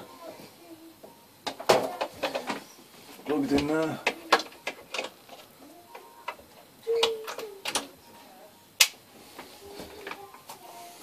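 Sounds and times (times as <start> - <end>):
plastic hoses clicking and knocking: 3.3 - 5.5.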